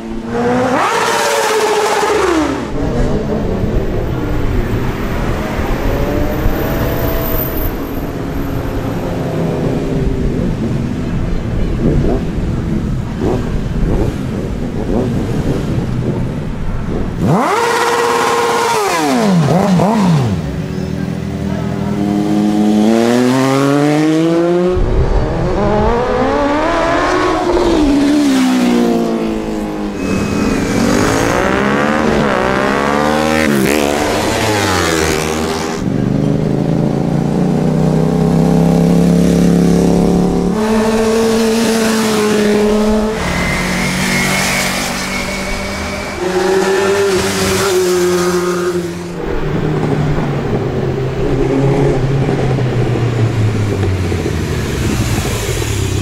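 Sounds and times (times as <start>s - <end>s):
engine revving: 0.0s - 3.8s, 17.2s - 20.7s, 22.0s - 56.0s
engines accelerating past: 16.9s - 56.0s.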